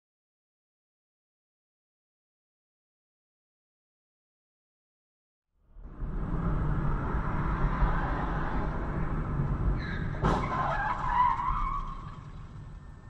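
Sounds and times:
car road noise: 5.7s - 13.0s
tyres screeching: 9.8s - 12.2s.

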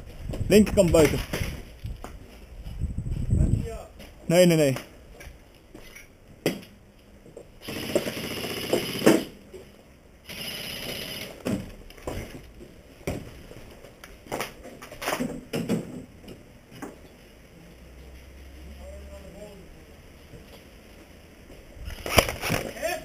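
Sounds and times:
airsoft gun bursts: 7.6s - 9.3s.

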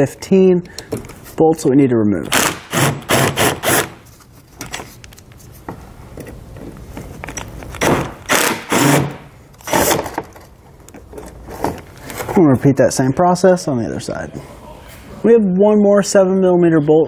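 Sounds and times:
screwdriver rasping: 2.3s - 4.0s, 7.3s - 10.2s.

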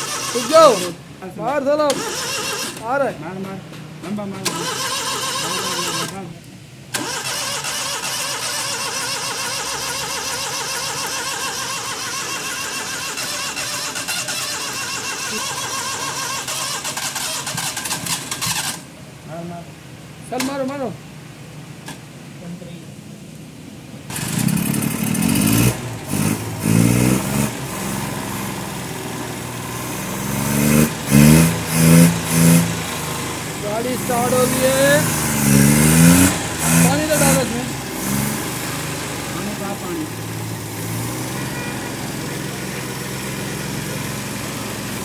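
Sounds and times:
car engine with wavering pitch: 24.1s - 45.0s.

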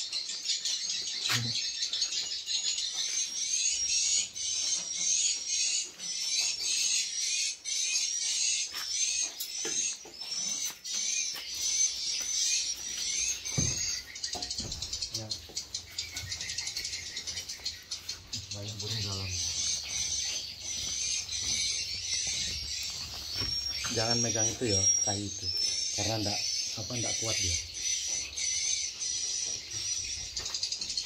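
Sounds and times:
swiftlets twittering: 13.2s - 27.7s.

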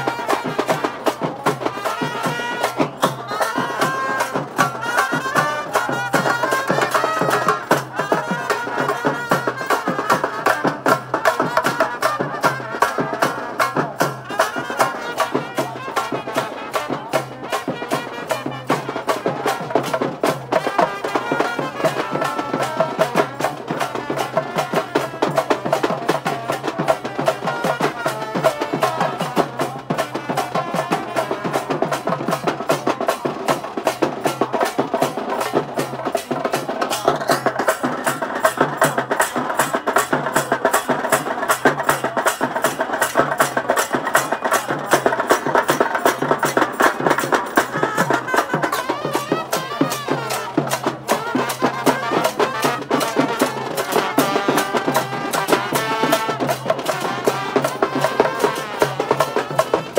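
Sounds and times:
rapid side drum drumming: 0.0s - 59.9s
trumpet and trombone melody: 1.7s - 13.7s, 20.6s - 23.2s, 47.8s - 59.9s.

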